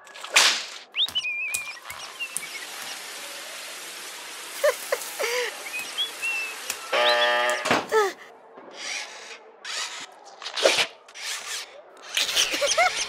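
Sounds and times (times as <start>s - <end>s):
shower spraying water: 1.0s - 7.0s.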